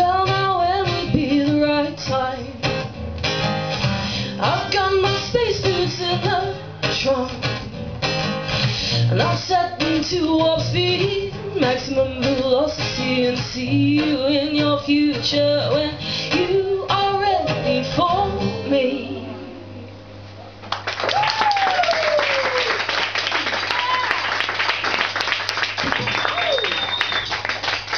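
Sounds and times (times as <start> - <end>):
woman singing: 0.0 - 2.8, 4.3 - 7.8, 9.1 - 19.9
strummed acoustic guitar: 0.0 - 19.8.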